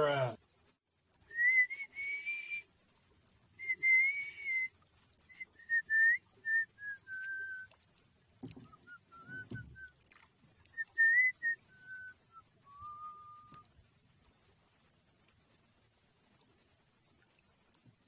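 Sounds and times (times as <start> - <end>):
man whistling a tune: 1.3 - 2.7, 3.6 - 4.7, 5.3 - 7.7, 8.6 - 9.9, 10.7 - 13.7
low knocks and rustles: 8.2 - 10.6.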